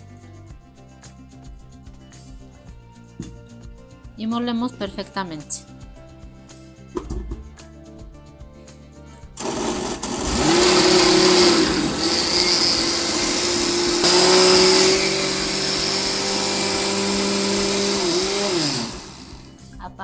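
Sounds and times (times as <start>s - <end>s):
blender motor running: 9.4s - 19.7s.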